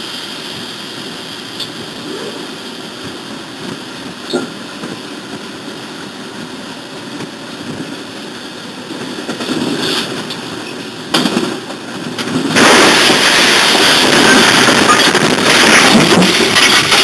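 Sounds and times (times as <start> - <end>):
freight locomotive wheels rumbling: 0.0 - 17.0
locomotives crashing: 11.1 - 17.0.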